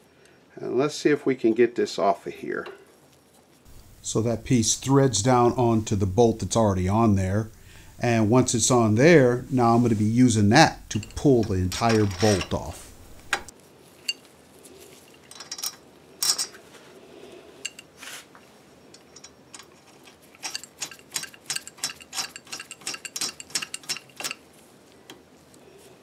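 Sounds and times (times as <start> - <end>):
light metallic clinks: 10.8 - 12.8, 17.6 - 17.9, 18.9 - 19.8.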